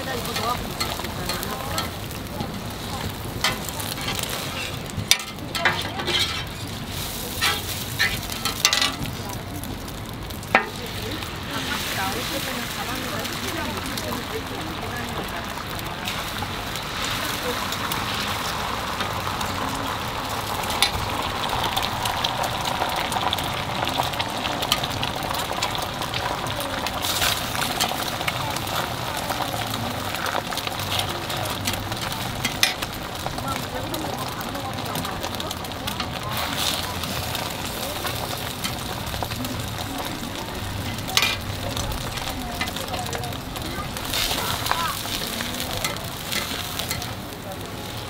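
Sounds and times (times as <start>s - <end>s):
food sizzling on griddle: 0.0s - 48.0s
metal spatula scraping steel: 3.4s - 9.0s.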